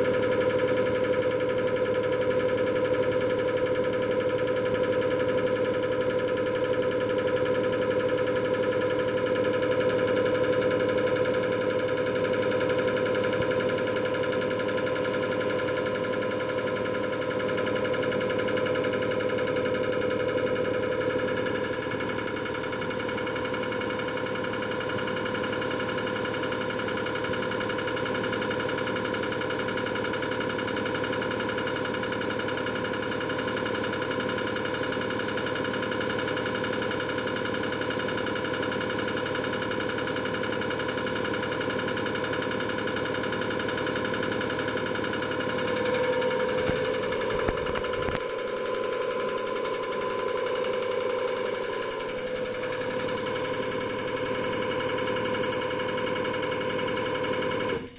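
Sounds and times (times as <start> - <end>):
injector firing rattle: 43.5 - 55.6
pump drive humming: 45.1 - 48.6, 51.4 - 54.2.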